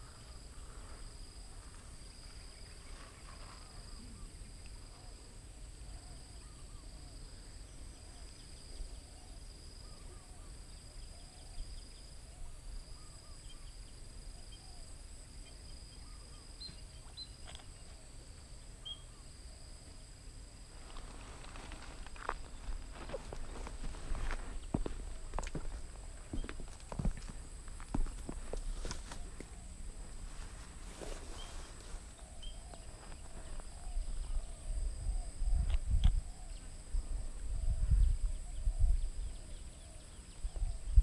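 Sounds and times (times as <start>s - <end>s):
faint high insect drone: 0.0s - 41.0s
insect high-pitched trill: 0.0s - 41.0s
low rumble of wind: 17.7s - 41.0s.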